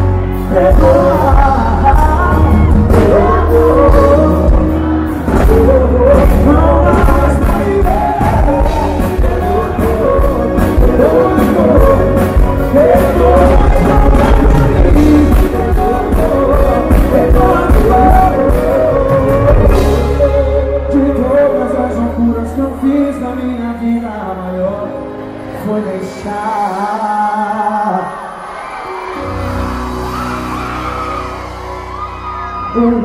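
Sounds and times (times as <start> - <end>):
heavy bass: 0.0 - 24.4
acoustic guitar: 0.0 - 26.9
person singing: 0.0 - 33.0
steady drum beat: 0.7 - 20.3.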